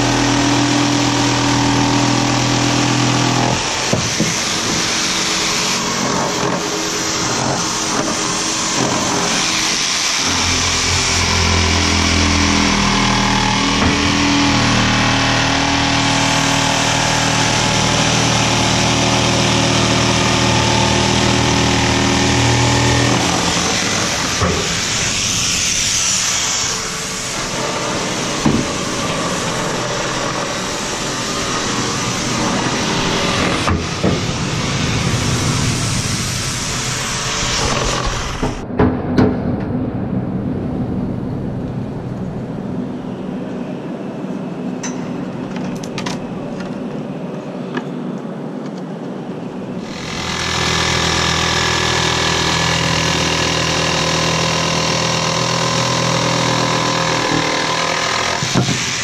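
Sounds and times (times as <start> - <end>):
engine running: 0.0 - 38.7
sharp knocks: 3.5 - 5.0, 28.4 - 29.8.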